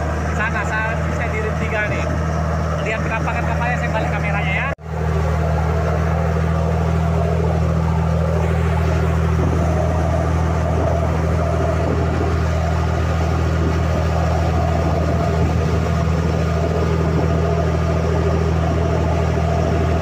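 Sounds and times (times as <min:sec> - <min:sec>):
boat engine humming: 0:00.0 - 0:20.0
water rushing past hull: 0:00.0 - 0:20.0.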